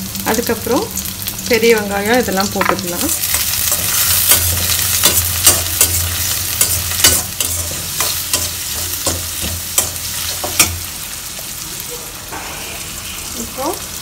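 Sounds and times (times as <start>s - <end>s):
shallots and garlic sizzling in oil: 0.0s - 14.0s
spatula scraping and clinking pan: 3.2s - 10.8s.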